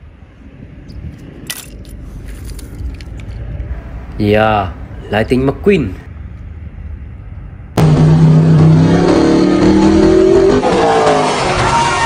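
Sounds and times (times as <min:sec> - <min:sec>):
race car engine accelerating: 0:07.8 - 0:12.0.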